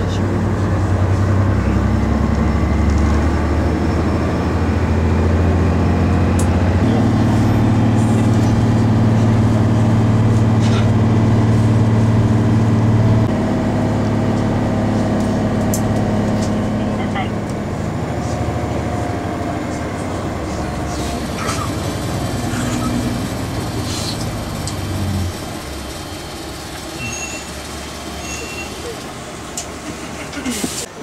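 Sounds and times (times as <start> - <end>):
bus engine hum from cabin: 0.0 - 31.0.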